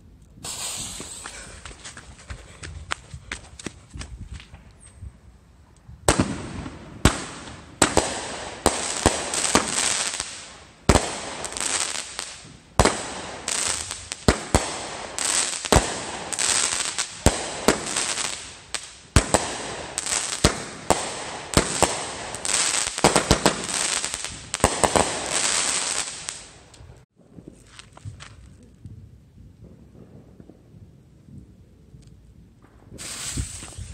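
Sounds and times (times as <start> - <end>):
crackling hiss of bursting stars: 0.4 - 1.6, 33.0 - 33.9
firework bangs: 0.4 - 1.6, 6.0 - 26.5, 32.6 - 33.9.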